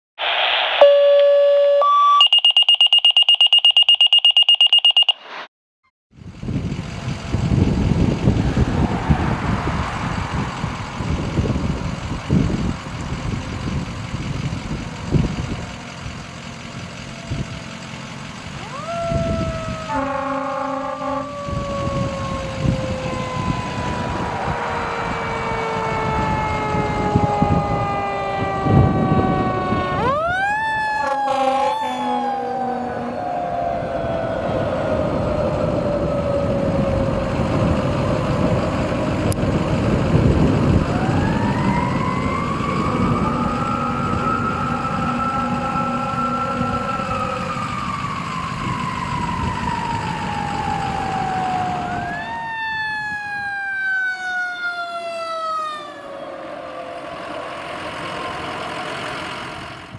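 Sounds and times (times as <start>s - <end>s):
electronic alert tones: 0.8s - 5.2s
mechanical siren winding: 2.2s - 5.2s
fire engines rumbling: 6.1s - 59.9s
horn blast: 19.9s - 21.5s, 31.0s - 33.2s.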